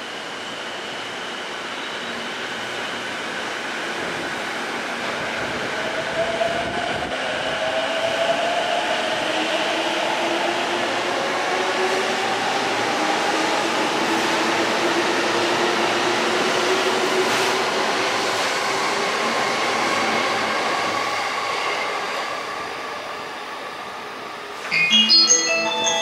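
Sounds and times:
train rumbling on rails: 0:00.0 - 0:24.7
electronic chime melody: 0:24.7 - 0:26.0.

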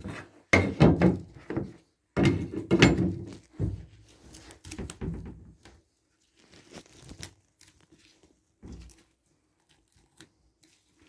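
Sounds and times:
debris tearing and crinkling: 0:03.1 - 0:11.0.

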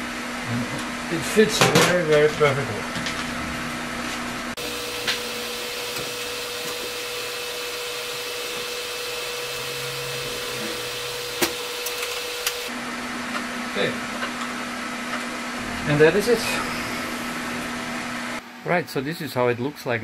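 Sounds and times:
electrical whine: 0:00.0 - 0:19.2
equipment whirring: 0:03.0 - 0:12.8, 0:14.3 - 0:18.4.

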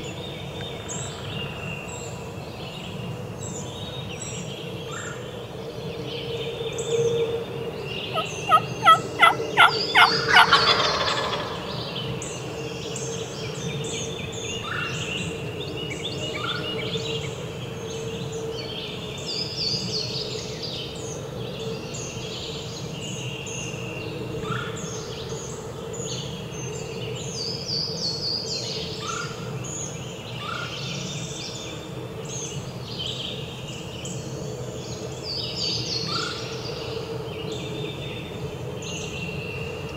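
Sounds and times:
songbirds chirping: 0:00.0 - 0:39.9
turkey gobbling: 0:08.1 - 0:11.7.

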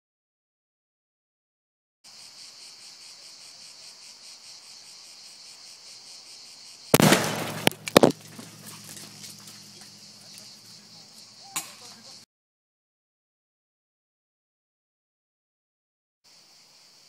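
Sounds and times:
insects chirring: 0:02.1 - 0:12.3, 0:16.3 - 0:17.0
sharp cracks: 0:06.9 - 0:09.6
loud sharp blast: 0:07.0 - 0:08.2.

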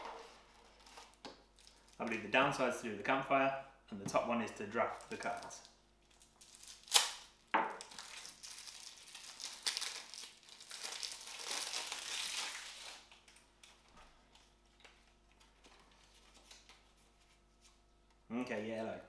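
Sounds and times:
plastic wrap crinkling: 0:00.0 - 0:02.4, 0:04.8 - 0:17.5
knife slitting plastic wrap: 0:06.5 - 0:13.1.

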